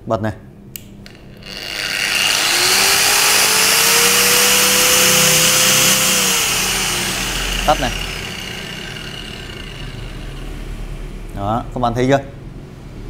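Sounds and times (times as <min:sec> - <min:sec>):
angle grinder spinning: 0:01.0 - 0:10.8
grinder whine: 0:01.0 - 0:10.9.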